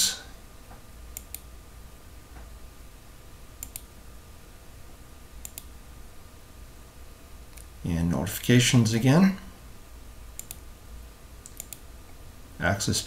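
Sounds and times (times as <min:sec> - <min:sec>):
faint room hum: 0:00.0 - 0:13.0
computer mouse clicking: 0:01.1 - 0:01.5, 0:03.6 - 0:03.9, 0:05.4 - 0:05.7, 0:10.4 - 0:10.6, 0:11.4 - 0:11.8.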